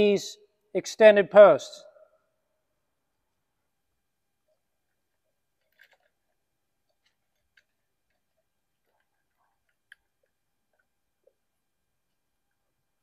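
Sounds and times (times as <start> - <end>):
metallic clicks of small parts: 5.6 - 10.8.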